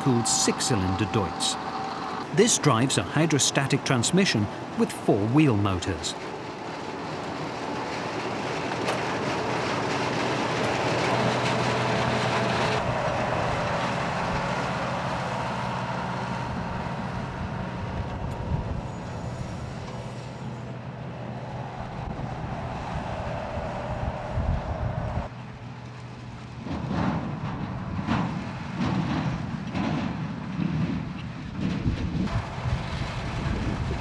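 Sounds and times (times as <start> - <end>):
tractor engine: 0.0 - 24.9, 32.3 - 34.0
harvester engine and machinery hum: 0.0 - 34.0.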